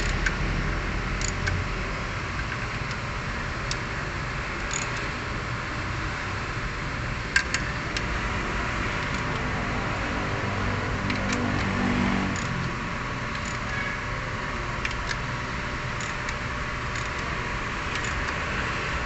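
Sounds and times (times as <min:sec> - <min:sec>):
steady noisy background: 0:00.0 - 0:19.0
socket wrench clicking: 0:01.2 - 0:01.6, 0:04.6 - 0:05.1, 0:07.3 - 0:08.1, 0:09.0 - 0:09.5, 0:12.3 - 0:13.8, 0:14.8 - 0:15.2, 0:16.0 - 0:18.4.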